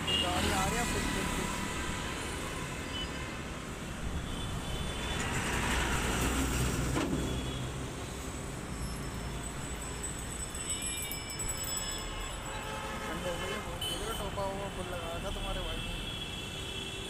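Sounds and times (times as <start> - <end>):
road traffic rumbling: 0.0 - 16.9.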